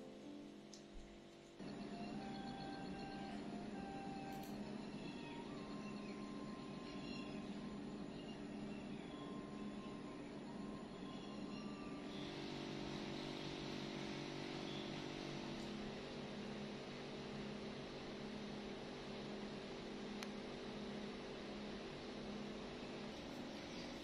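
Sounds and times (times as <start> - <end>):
faint click: 0.7 - 1.1.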